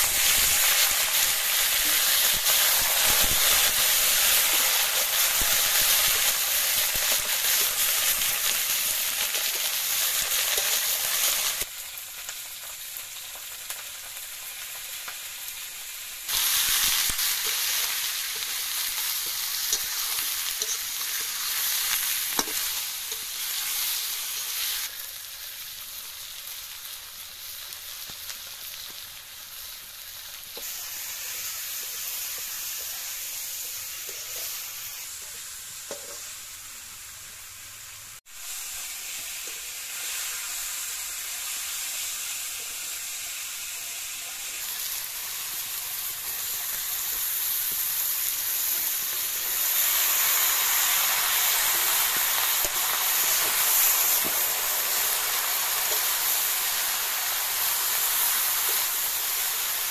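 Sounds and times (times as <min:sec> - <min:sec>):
fish sizzling in hot oil: 0:00.0 - 0:59.9
metal spatula scraping: 0:16.6 - 0:23.8.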